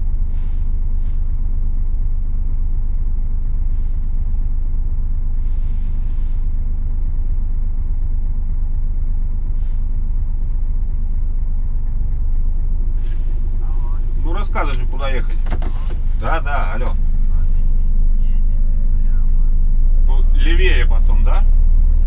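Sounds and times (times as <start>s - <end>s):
truck diesel engine drone: 0.0s - 22.0s
air brake hisses: 5.4s - 6.5s, 13.0s - 13.7s.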